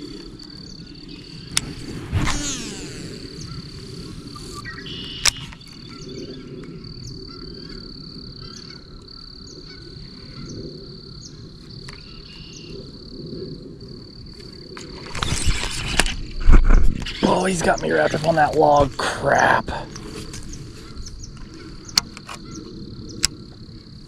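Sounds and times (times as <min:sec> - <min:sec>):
frogs trilling: 0:00.0 - 0:16.1, 0:17.0 - 0:24.0
rush of noise: 0:01.3 - 0:05.5
frog chirps: 0:02.3 - 0:06.0.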